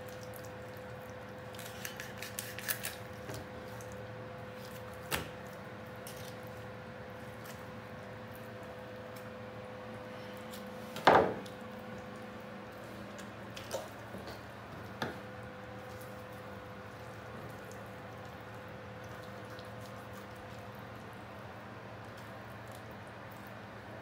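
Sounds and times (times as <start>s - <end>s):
steady machine hum: 0.0s - 24.0s
thump on cutting board: 11.0s - 11.4s.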